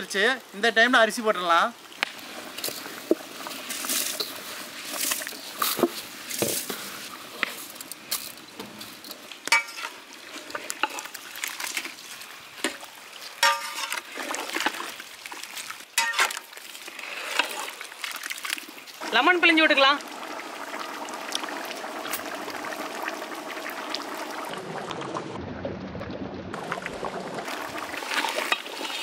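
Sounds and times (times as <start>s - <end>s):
broth sloshing and bubbling: 9.2s - 29.0s
metal ladle scraping pot: 9.5s - 11.2s, 13.4s - 14.8s, 16.0s - 16.4s, 27.9s - 29.0s.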